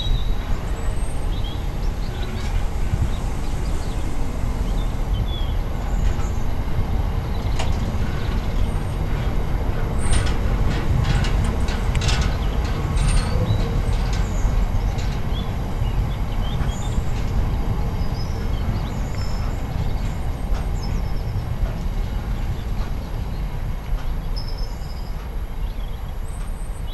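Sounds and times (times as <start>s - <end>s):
train wheels rumbling on rails: 0.0s - 26.9s.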